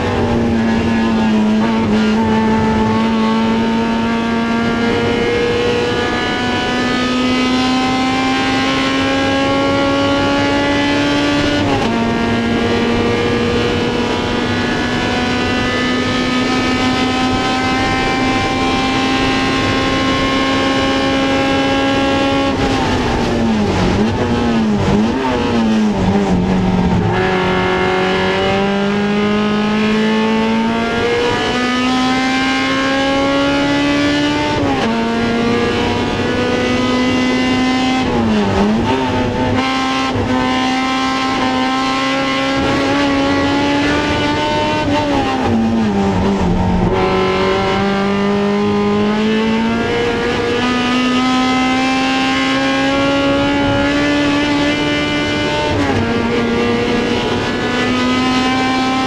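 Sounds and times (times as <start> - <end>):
race car engine revving: 0.0 - 59.0.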